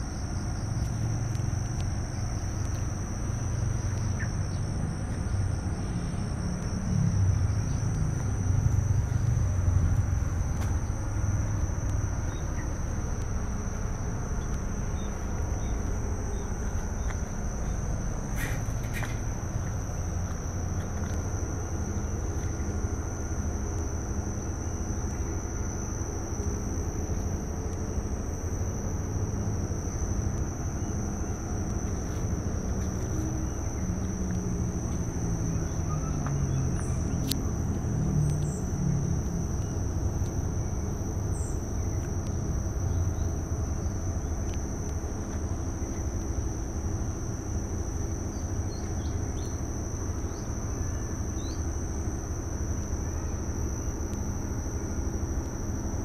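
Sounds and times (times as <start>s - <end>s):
high-pitched insect drone: 0.0s - 56.0s
low rumble: 1.1s - 23.5s.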